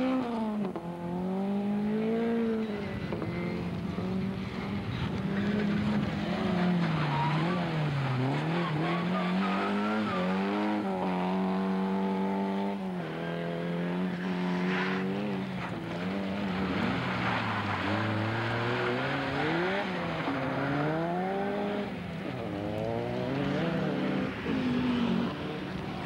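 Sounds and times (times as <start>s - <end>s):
rally car engine revving: 0.0s - 26.0s.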